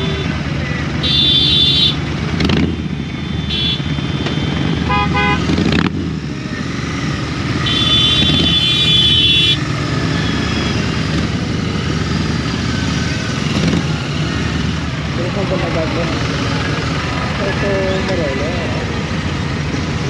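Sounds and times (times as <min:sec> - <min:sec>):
vehicle horn: 0:00.0 - 0:00.4, 0:01.0 - 0:02.0, 0:03.2 - 0:05.6, 0:07.6 - 0:09.6
motorcycle engine running: 0:00.0 - 0:20.0.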